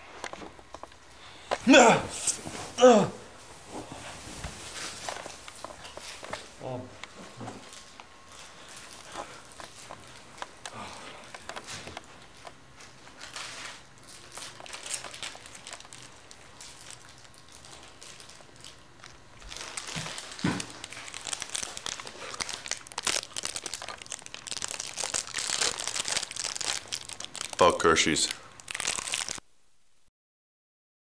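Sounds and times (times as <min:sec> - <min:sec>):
wrapper crinkling: 0:07.6 - 0:29.4.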